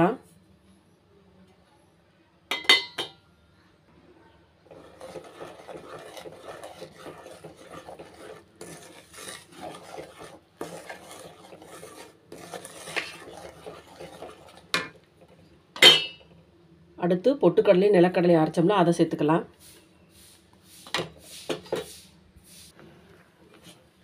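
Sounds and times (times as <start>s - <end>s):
spatula scraping in pan: 4.7s - 15.5s, 23.5s - 24.0s.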